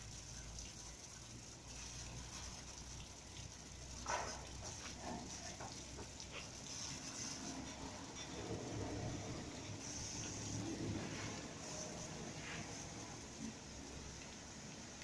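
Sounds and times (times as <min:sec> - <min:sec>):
water spray hissing: 0:00.0 - 0:15.0
rotating brushes: 0:03.9 - 0:13.6.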